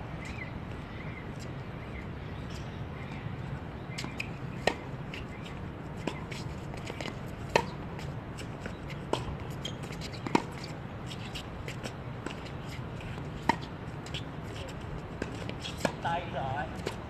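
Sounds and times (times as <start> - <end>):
tennis ball struck by racket: 7.0 - 7.8, 10.2 - 10.6, 15.2 - 16.0.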